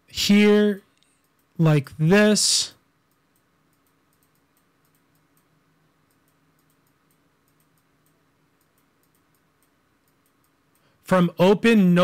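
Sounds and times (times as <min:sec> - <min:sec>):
faint low hum: 0:00.0 - 0:12.0
computer mouse clicks: 0:00.9 - 0:01.6, 0:03.1 - 0:10.9.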